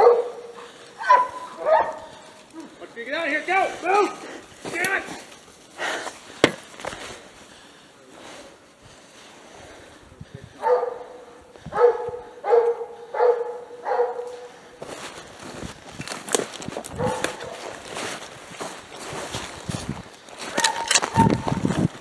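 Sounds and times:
dog barking: 0.0 - 2.2, 10.6 - 14.6, 17.0 - 17.7, 20.6 - 21.5.

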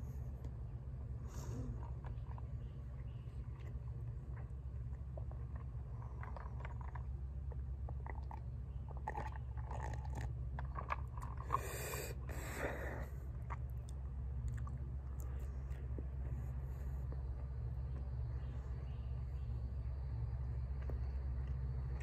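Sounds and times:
person chewing pizza: 1.4 - 18.2.

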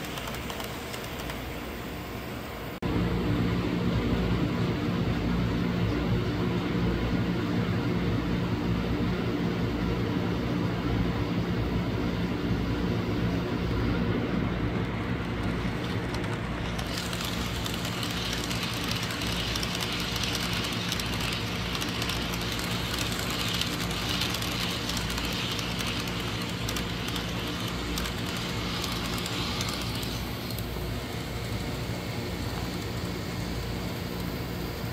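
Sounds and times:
hiss: 0.0 - 2.2, 15.6 - 34.9
model trains humming: 0.0 - 8.5, 11.4 - 34.9.

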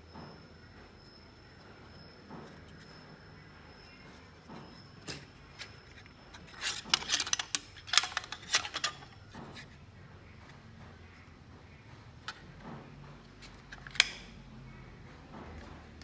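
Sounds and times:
metal housings clacking together: 5.0 - 9.6.

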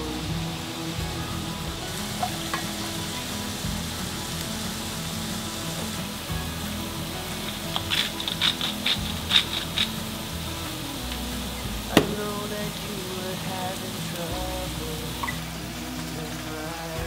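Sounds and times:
milk sizzling in pan: 0.0 - 17.0
pepper grinder rasping: 7.8 - 10.0.

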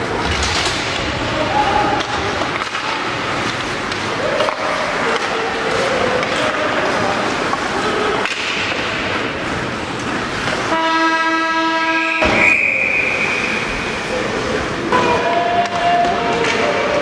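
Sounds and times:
crowd chatter: 0.0 - 11.0, 11.6 - 17.0
horn blast: 10.7 - 13.8
high whistle blast: 11.9 - 13.9.

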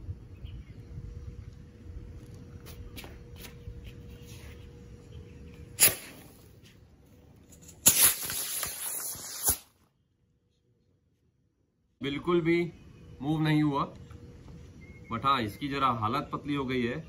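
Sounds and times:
wind rumble on microphone: 0.0 - 5.7
firework rocket hissing: 5.8 - 6.6, 7.7 - 9.8.

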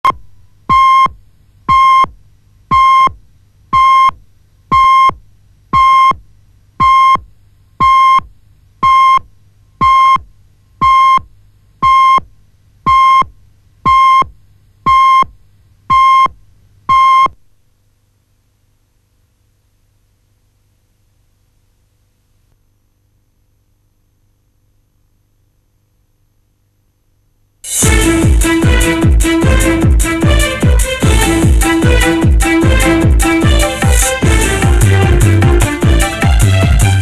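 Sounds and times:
faint low hum: 0.0 - 28.5.

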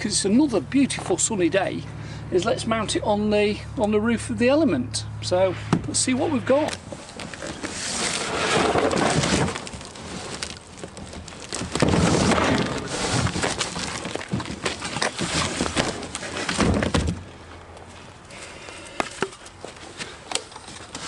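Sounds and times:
cardboard box scraping and rustling: 5.5 - 17.2.

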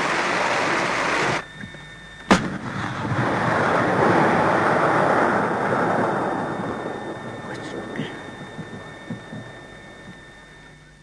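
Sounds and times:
sharp bang: 2.3 - 4.3
steady rushing noise: 2.3 - 10.2.

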